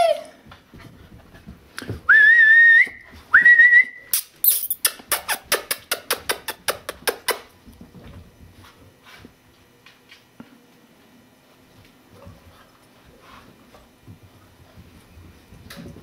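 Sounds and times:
whistled notes: 2.1 - 4.2.

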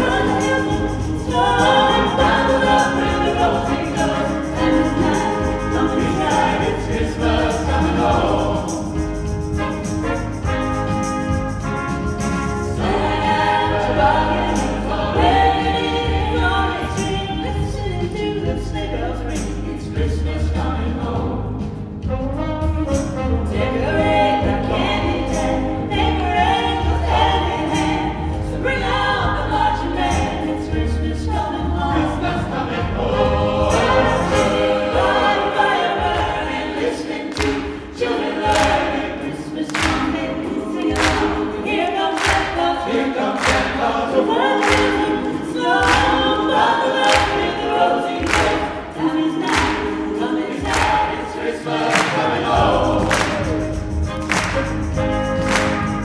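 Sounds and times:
women soloists singing: 0.0 - 11.2, 12.6 - 21.8, 23.5 - 54.7
mixed choir singing: 0.0 - 22.2, 22.9 - 56.0
sharp evenly spaced beat hits: 33.5 - 56.0.

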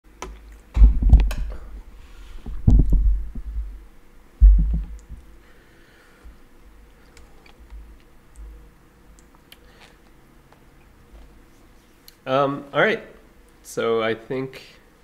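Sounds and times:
dull low thumps: 0.7 - 5.3.

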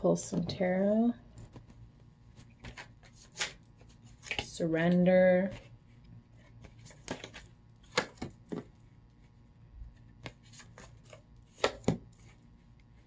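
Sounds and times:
cards shuffling: 2.4 - 4.5, 5.5 - 8.7, 10.0 - 13.0.

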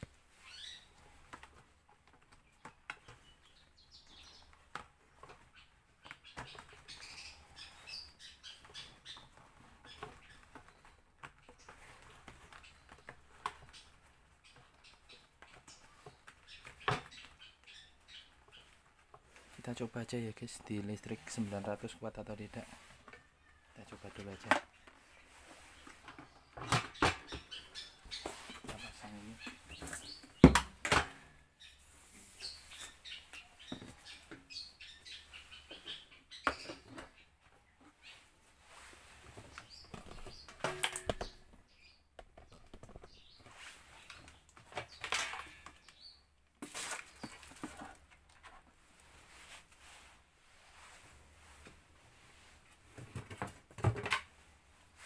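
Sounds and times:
plastic knocks and clatter: 25.8 - 27.6, 28.6 - 31.3, 39.4 - 43.2, 52.9 - 54.4.

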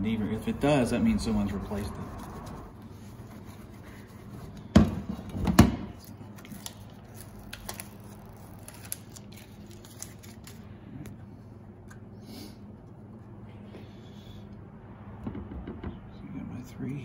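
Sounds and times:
backing film peeling crackles: 6.0 - 10.7
sharp knocks: 15.2 - 16.1.

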